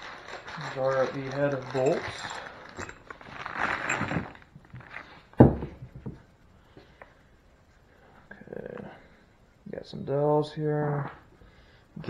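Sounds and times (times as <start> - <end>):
handling engine parts rustling: 0.0 - 6.3.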